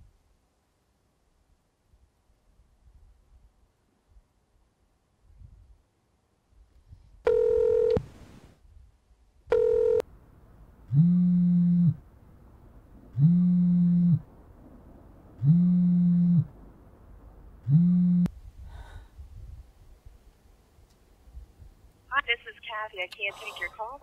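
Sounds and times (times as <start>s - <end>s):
phone ringback tones: 7.3s - 8.0s, 9.5s - 10.0s.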